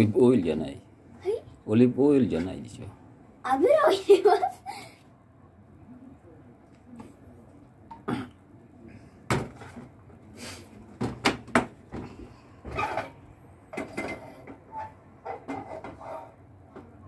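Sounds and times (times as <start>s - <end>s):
kitchenware knocks and clatters: 9.3s - 10.0s, 11.0s - 17.0s.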